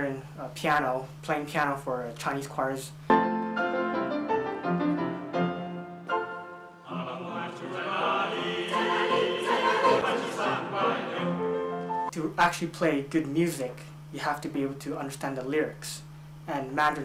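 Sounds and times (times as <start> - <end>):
grand piano playing: 3.1 - 12.1
mixed choir singing: 6.8 - 12.1.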